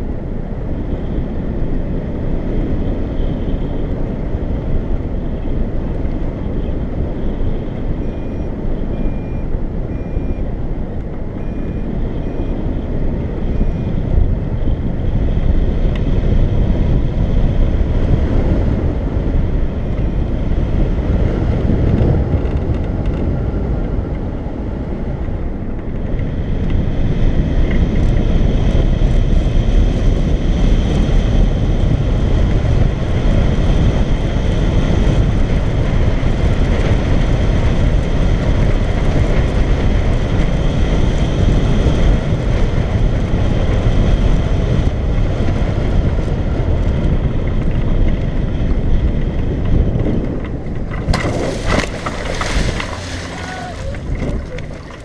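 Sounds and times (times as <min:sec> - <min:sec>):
wind rumble on microphone: 0:00.0 - 0:55.0.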